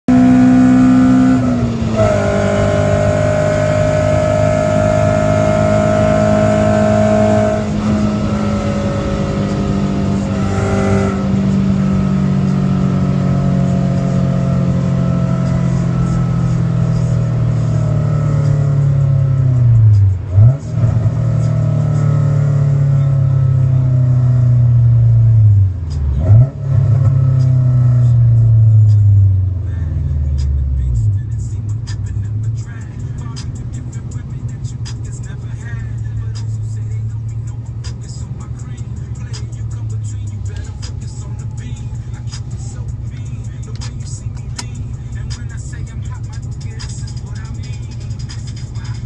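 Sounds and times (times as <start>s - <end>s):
car engine while driving: 0.0s - 49.0s.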